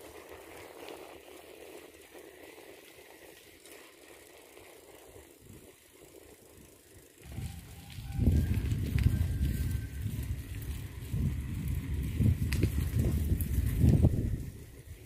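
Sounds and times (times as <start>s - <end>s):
faint outdoor background noise: 0.0s - 15.0s
wind buffeting microphone: 7.2s - 15.0s.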